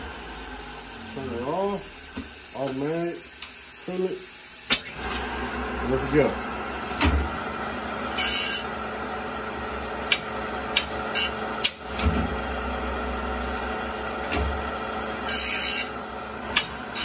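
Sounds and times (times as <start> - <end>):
grinding wheel on saw blade: 8.0 - 8.8, 10.1 - 11.8, 15.0 - 17.0.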